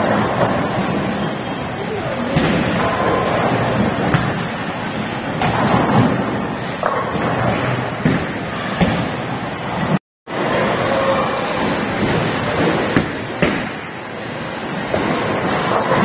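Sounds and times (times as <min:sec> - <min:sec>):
bowling balls rumbling: 0:00.0 - 0:16.0
bowling pins crashing: 0:02.2 - 0:10.9.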